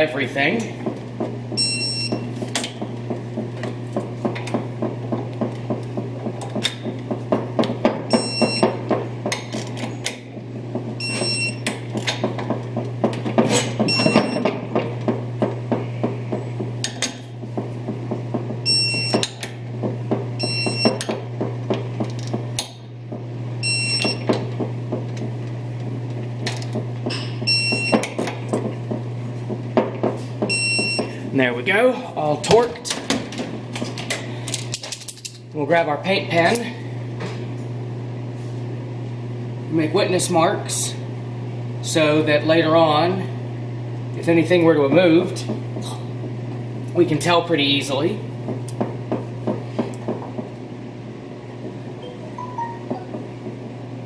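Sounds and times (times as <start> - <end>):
steady low hum: 0.0 - 54.0
high beeps: 52.0 - 53.2.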